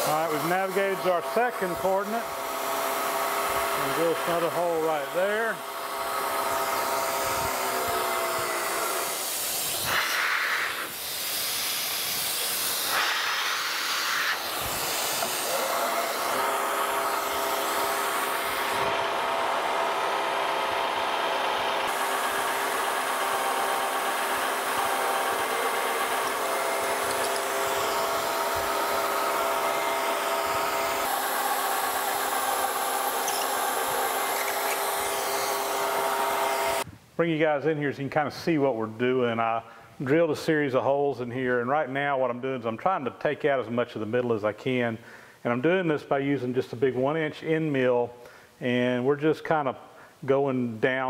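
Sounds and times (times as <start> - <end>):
milling machine drilling steel: 0.0 - 10.2, 10.8 - 36.8
hiss of mist coolant: 6.6 - 18.8.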